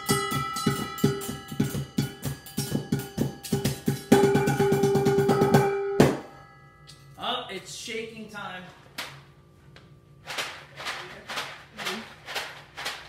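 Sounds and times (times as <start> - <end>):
striking metal bowls and jars: 0.0 - 7.2.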